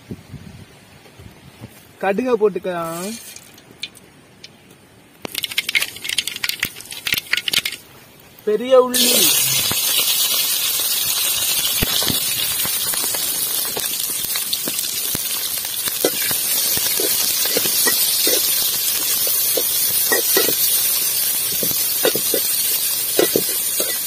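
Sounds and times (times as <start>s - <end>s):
onions sizzling in oil: 8.4s - 24.0s
metal ladle scraping: 16.0s - 20.8s, 21.5s - 24.0s.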